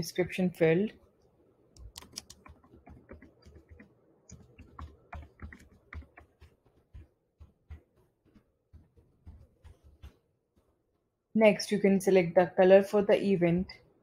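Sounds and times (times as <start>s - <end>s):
keyboard typing clicks: 1.8s - 7.1s.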